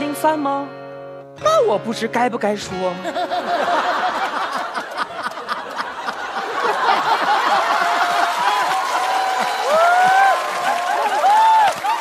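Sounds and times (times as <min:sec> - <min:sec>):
held musical notes: 0:00.0 - 0:04.8
studio audience laughing: 0:03.0 - 0:11.4.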